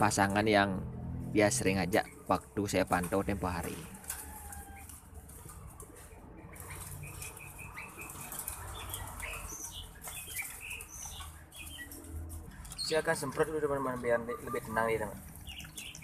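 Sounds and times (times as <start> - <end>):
birds flapping and scrambling: 1.0 - 16.0
high bird chirps and squeaks: 6.5 - 16.0.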